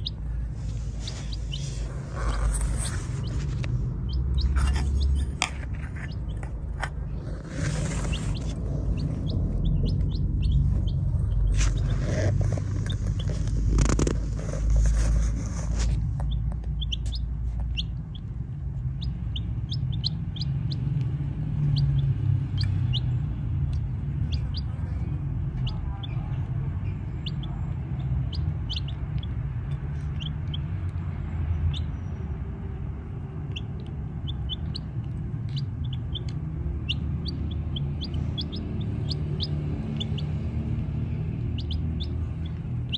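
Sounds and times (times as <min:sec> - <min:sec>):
baby chicks peeping: 0:00.0 - 0:42.9
steady low rumble: 0:00.0 - 0:42.9
rustling: 0:00.3 - 0:10.0, 0:10.6 - 0:16.7.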